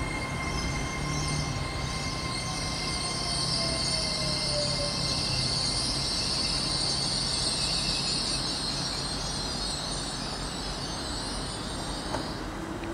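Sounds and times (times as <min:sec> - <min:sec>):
train moving slowly: 0:00.0 - 0:12.9
steady high hiss: 0:04.9 - 0:12.8.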